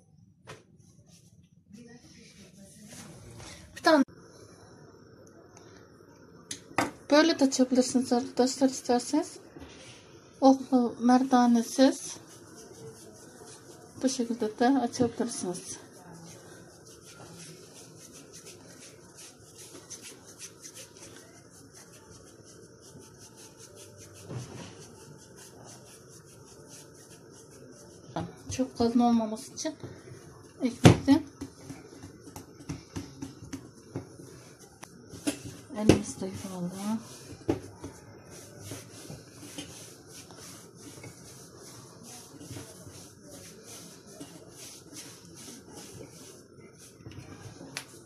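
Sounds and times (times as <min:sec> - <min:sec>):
hands kneading bread dough: 0:10.4 - 0:48.0.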